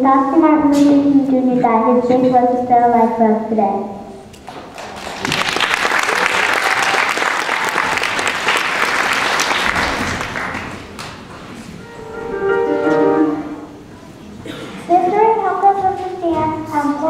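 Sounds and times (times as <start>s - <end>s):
audience applauding: 4.5s - 11.4s
music: 11.8s - 13.9s.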